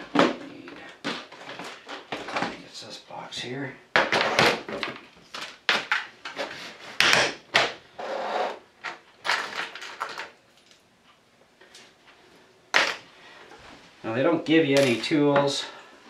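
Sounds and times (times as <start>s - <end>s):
plastic box clattering: 8.8s - 10.4s
small parts rattling: 8.8s - 10.8s.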